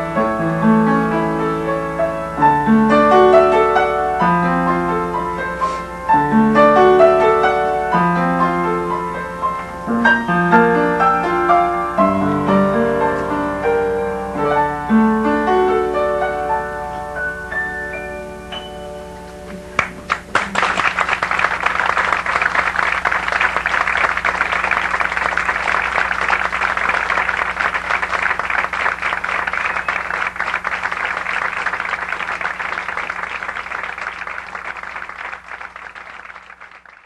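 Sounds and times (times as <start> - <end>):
audience applauding: 19.7 - 37.0.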